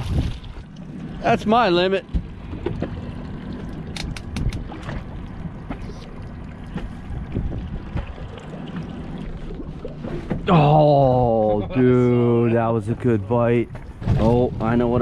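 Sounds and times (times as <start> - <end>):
wind on microphone: 0.0 - 0.6, 7.0 - 8.4
low steady rumble: 0.0 - 15.0.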